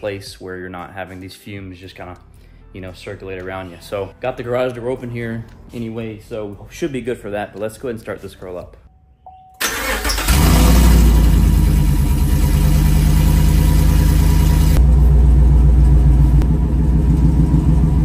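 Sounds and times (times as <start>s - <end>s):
starter cranking engine: 9.6s - 14.8s.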